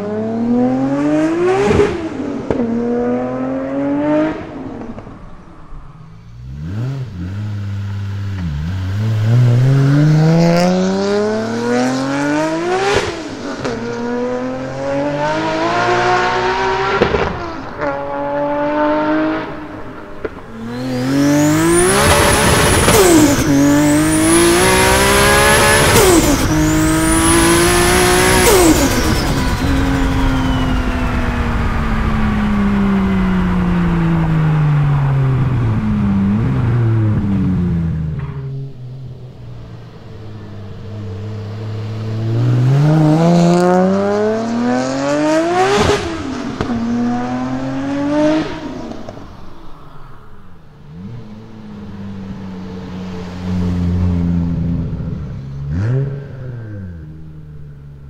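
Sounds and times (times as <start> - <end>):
car engine revving through upshifts: 0.0 - 50.2, 50.8 - 57.8
turbo whistle: 28.6 - 31.8.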